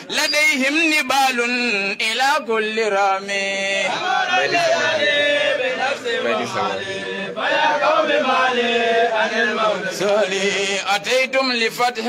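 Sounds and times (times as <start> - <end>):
man chanting through microphone: 6.0 - 7.0, 10.0 - 12.0.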